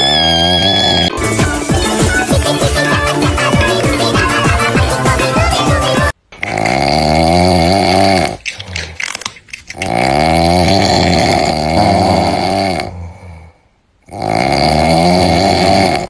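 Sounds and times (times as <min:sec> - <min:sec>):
comic snoring with bending pitch: 0:00.0 - 0:04.1, 0:06.4 - 0:08.4, 0:09.8 - 0:16.0.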